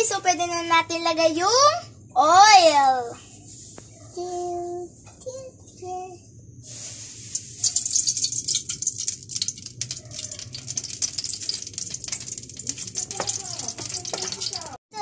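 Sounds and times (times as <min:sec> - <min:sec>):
oil sizzling in a frying pan: 0:06.7 - 0:14.8.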